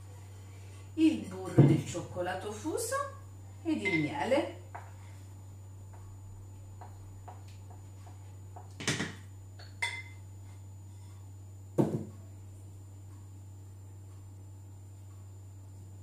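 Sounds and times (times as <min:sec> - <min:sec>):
glass clinking: 0:09.6 - 0:10.2.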